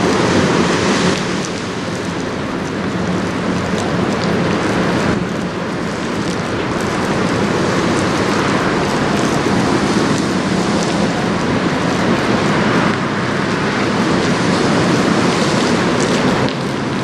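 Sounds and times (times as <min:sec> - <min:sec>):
rain: 0:00.0 - 0:17.0
wind: 0:00.0 - 0:17.0.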